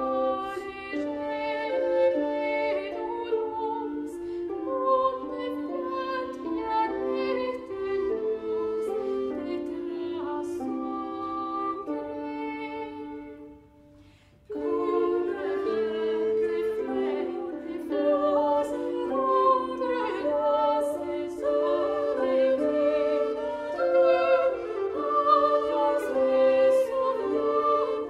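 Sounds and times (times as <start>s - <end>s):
early music ensemble playing: 0.0s - 28.0s.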